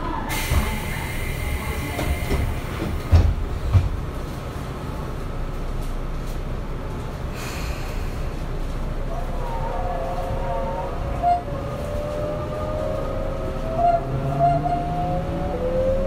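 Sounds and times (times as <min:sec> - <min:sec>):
air hiss: 0:00.3 - 0:03.1
train doors thudding shut: 0:00.3 - 0:04.3.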